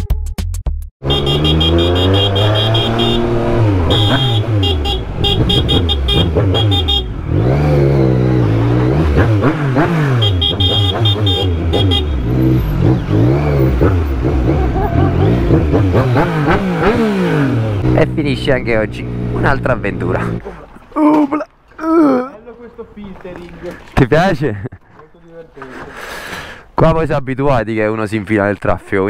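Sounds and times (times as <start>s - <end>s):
motorcycle engine revving: 1.0s - 20.4s.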